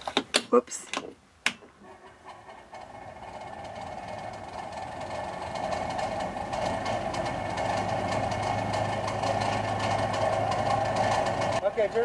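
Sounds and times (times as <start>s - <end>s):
rapid irregular ticking: 1.9s - 11.6s
fan whirring loudly: 2.7s - 11.6s.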